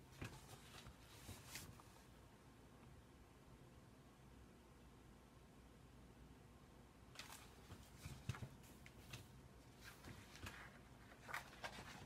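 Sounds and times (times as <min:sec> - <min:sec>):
paper rustling and scraping: 0:00.0 - 0:02.1, 0:07.2 - 0:12.0.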